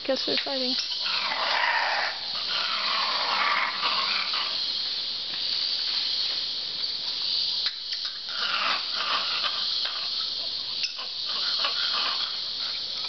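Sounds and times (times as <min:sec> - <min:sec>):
howler monkeys howling: 0:00.9 - 0:04.7, 0:08.1 - 0:13.0.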